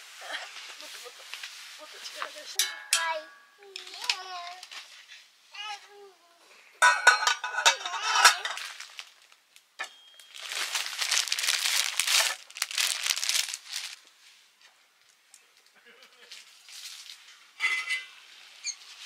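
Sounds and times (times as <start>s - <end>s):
crinkling and rustling: 0.3s - 2.6s, 3.7s - 5.3s, 7.1s - 9.6s, 10.2s - 17.8s.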